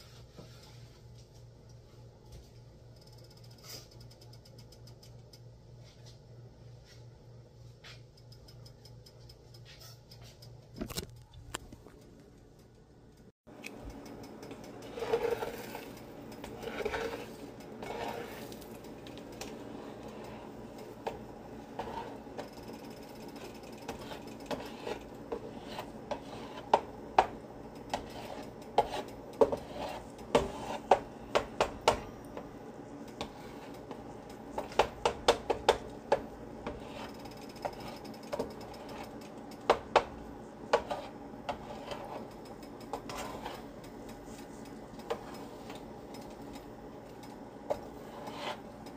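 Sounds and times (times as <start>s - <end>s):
faint steady hum: 0.0s - 48.9s
spatula scraping a frying pan: 14.5s - 46.5s, 47.6s - 48.9s.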